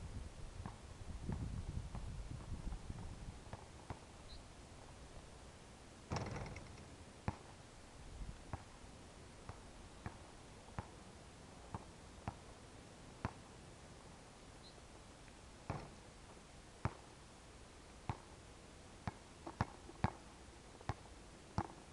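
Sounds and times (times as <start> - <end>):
basketball bouncing on court: 15.7 - 16.0.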